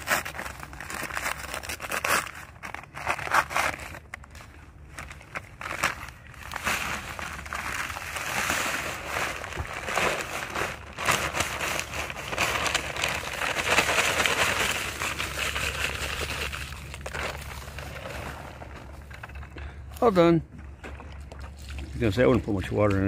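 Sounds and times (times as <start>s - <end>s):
paper bag crinkling: 0.0s - 19.7s
powdery mix pouring: 5.2s - 19.7s.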